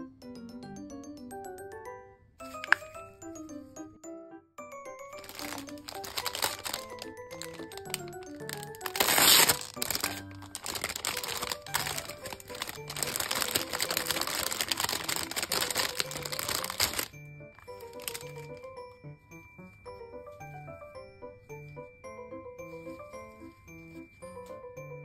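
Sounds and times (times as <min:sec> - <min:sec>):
gentle background music: 0:00.0 - 0:25.0
plastic bag crinkling: 0:02.4 - 0:02.9, 0:05.1 - 0:18.7.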